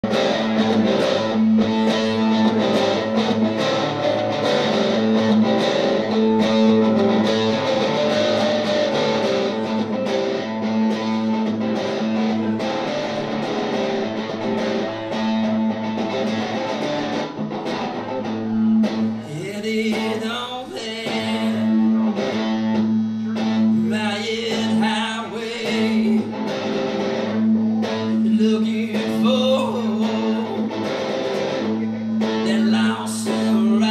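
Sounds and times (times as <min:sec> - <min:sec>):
acoustic guitar picked rhythm: 0:00.0 - 0:33.9
man singing: 0:19.1 - 0:22.1, 0:23.7 - 0:26.5, 0:28.0 - 0:31.0, 0:32.3 - 0:33.9.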